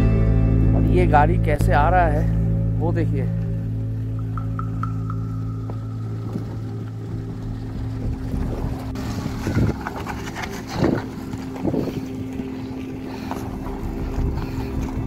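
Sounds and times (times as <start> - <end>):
car driving through water and mud: 3.7 - 15.0
wind buffeting microphone: 4.2 - 15.0
small car engine running: 5.2 - 15.0.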